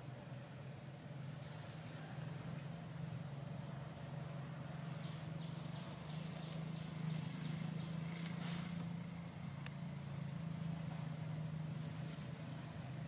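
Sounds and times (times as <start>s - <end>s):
insect buzzing: 0.0s - 13.0s
steady low hum: 0.0s - 13.0s
faint rustles: 1.3s - 2.7s, 4.8s - 13.0s.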